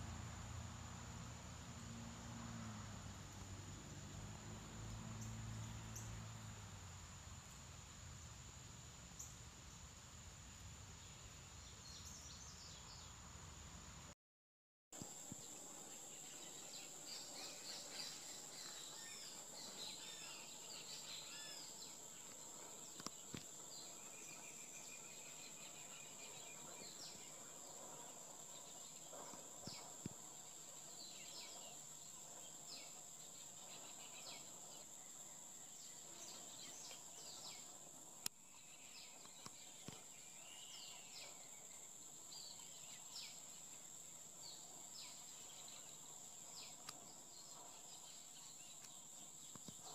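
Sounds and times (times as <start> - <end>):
steady high-pitched whine: 0.0 - 14.1, 15.0 - 49.9
small birds chirping: 15.0 - 49.9.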